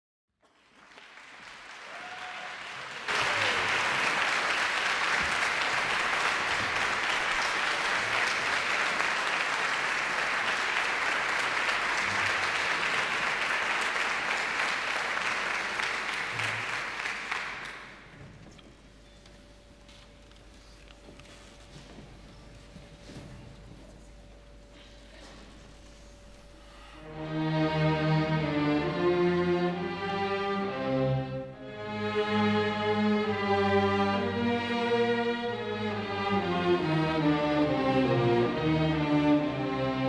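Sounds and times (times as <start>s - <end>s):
audience applauding: 0.4s - 18.2s.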